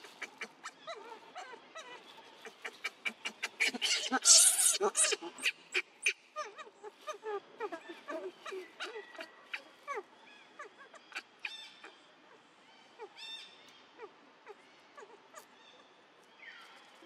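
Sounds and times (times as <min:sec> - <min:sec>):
buzzy animal calls: 0:03.0 - 0:05.8.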